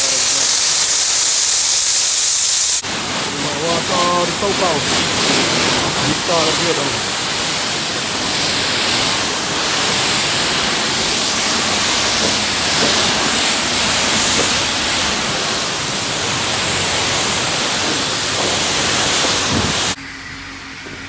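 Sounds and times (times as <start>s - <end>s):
pressure washer spraying car: 0.0s - 21.0s.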